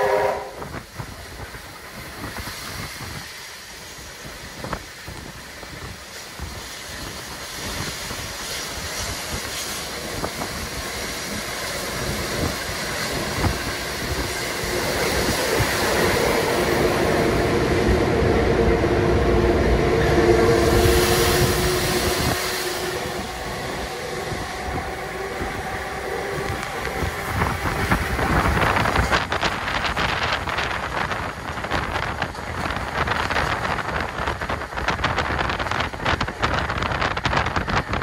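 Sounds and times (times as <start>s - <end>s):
train rumble and rail noise: 0.0s - 38.0s.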